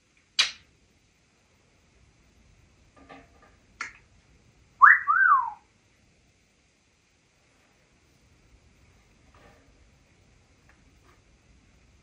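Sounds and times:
parrot two-note whistle: 0:04.8 - 0:05.6.

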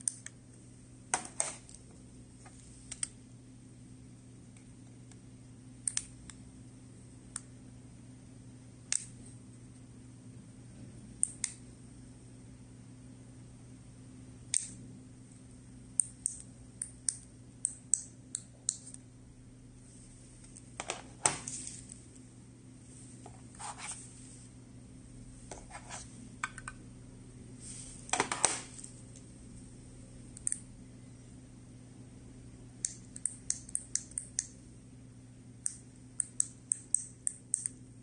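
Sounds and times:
rustling handling noises: 0:19.9 - 0:22.2.

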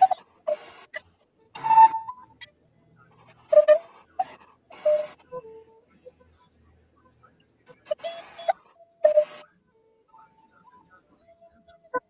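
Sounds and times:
whistle playing breathy notes: 0:01.6 - 0:02.3.

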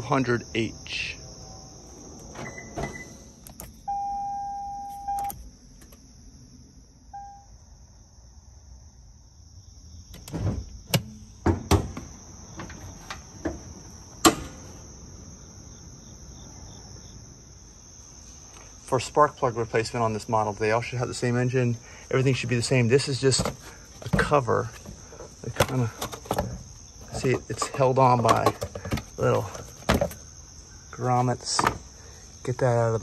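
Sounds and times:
crickets chirping: 0:00.0 - 0:33.0
car warning chime: 0:03.8 - 0:05.4, 0:07.1 - 0:07.5
short beep: 0:03.9 - 0:05.4, 0:07.2 - 0:07.5
hood latch clunks: 0:10.1 - 0:14.8, 0:23.3 - 0:30.2, 0:31.4 - 0:31.8
car door opening click: 0:14.2 - 0:14.7.

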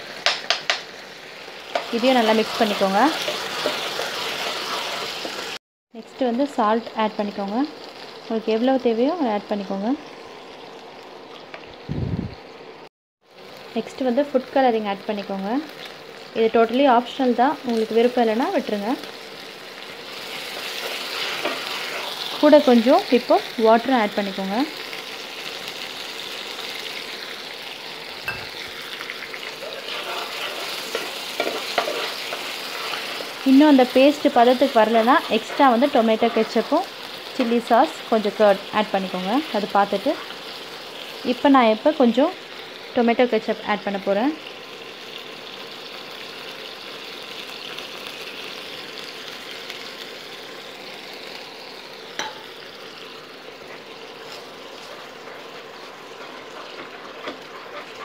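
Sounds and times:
spices sizzling in hot oil: 0:00.0 - 0:58.0
metal spatula scraping pan: 0:29.5 - 0:33.4, 0:34.9 - 0:36.8.

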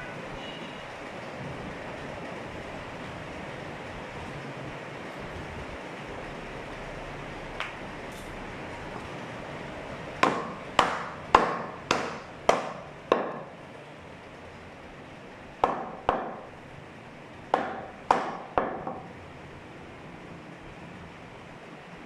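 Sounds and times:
cleaver chopping on wooden block: 0:10.2 - 0:13.5, 0:15.6 - 0:16.5, 0:17.5 - 0:19.0.

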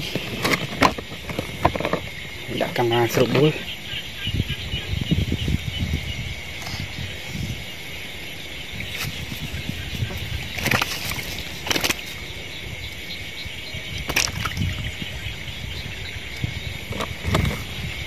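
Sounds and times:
water sloshing and splashing: 0:00.0 - 0:04.0, 0:08.6 - 0:18.0
night insects trilling: 0:00.0 - 0:18.0.

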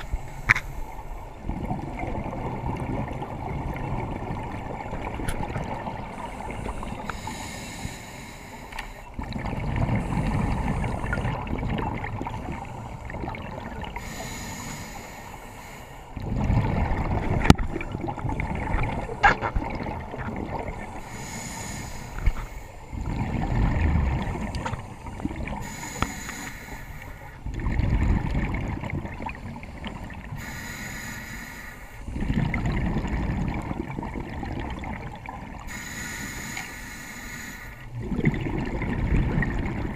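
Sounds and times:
regulator hissing inhale: 0:00.0 - 0:01.3, 0:06.1 - 0:09.1, 0:14.0 - 0:16.1, 0:20.9 - 0:23.0, 0:24.8 - 0:27.4, 0:30.3 - 0:32.1, 0:35.6 - 0:37.9
exhaled bubbles gushing: 0:00.0 - 0:07.3, 0:09.1 - 0:14.2, 0:16.1 - 0:21.3, 0:22.2 - 0:26.1, 0:27.3 - 0:30.4, 0:32.0 - 0:35.7, 0:37.8 - 0:39.9.

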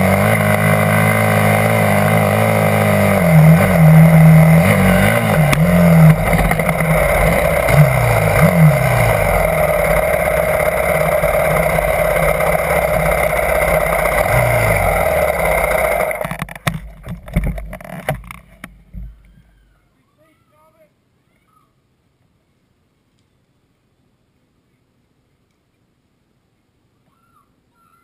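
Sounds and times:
dirt bike engine revving: 0:00.0 - 0:18.5
knocks and clicks: 0:16.2 - 0:19.2.

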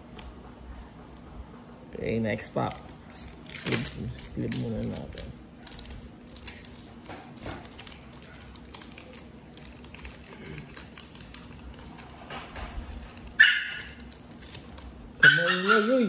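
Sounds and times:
cards rustling: 0:02.3 - 0:15.2
dog barking: 0:13.4 - 0:13.9, 0:15.2 - 0:16.0.

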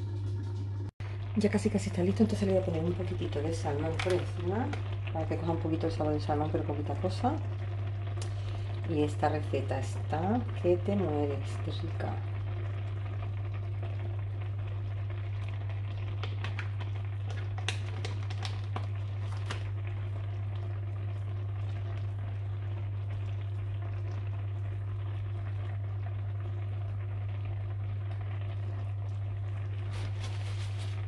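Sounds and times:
steady low hum: 0:00.0 - 0:16.1
stew simmering with bubbling pops: 0:00.2 - 0:31.0.

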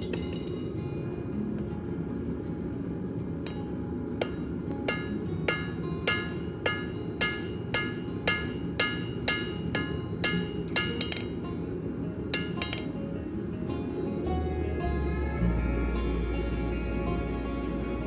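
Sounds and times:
hammer striking steel on anvil: 0:03.4 - 0:11.4, 0:12.3 - 0:13.0.

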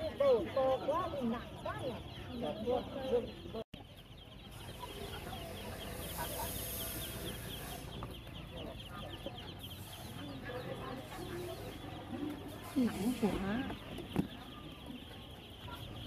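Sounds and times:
ducklings peeping: 0:00.0 - 0:16.0.

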